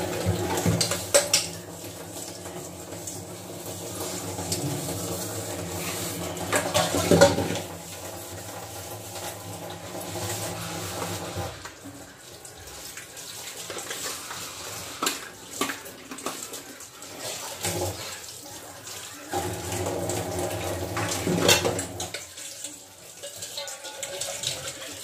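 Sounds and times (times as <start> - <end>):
plates clinking: 6.3 - 7.7.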